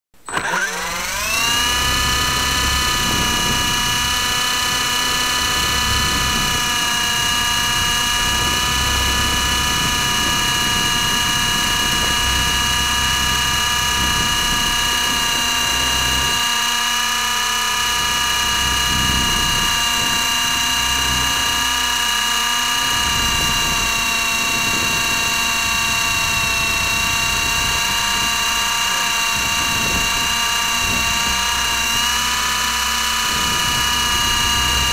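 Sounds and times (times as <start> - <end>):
drone propellers whining: 0.2 - 34.9
wind rumble on microphone: 2.6 - 4.8, 22.9 - 28.4, 29.2 - 32.1.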